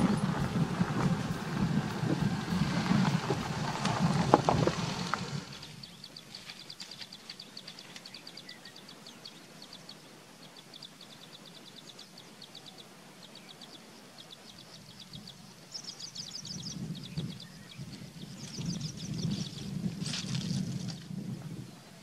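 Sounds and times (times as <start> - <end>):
low rumble: 0.0 - 5.8
small bird chirping: 5.5 - 21.1.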